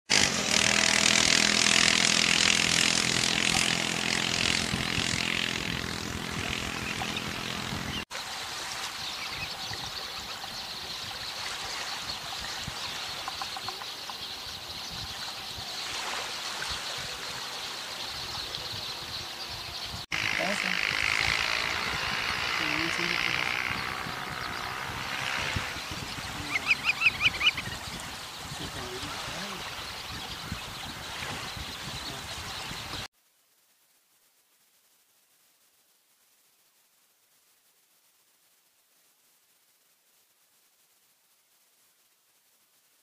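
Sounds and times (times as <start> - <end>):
engine running: 0.1 - 8.0, 20.1 - 27.6.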